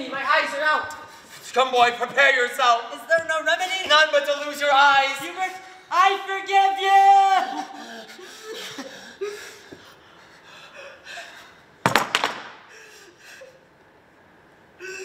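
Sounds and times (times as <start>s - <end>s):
wooden stick clattering on floor: 11.9s - 12.6s.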